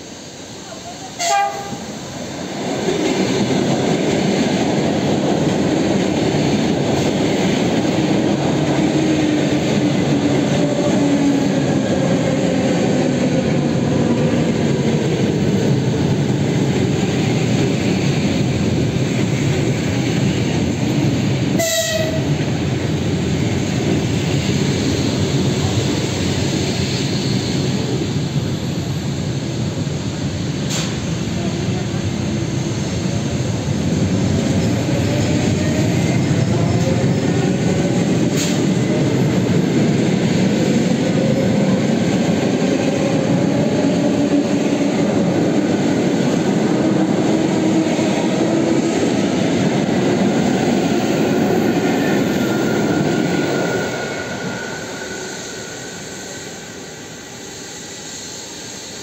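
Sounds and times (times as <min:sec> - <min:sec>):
train horn blast: 0:01.2 - 0:01.9, 0:21.6 - 0:22.3.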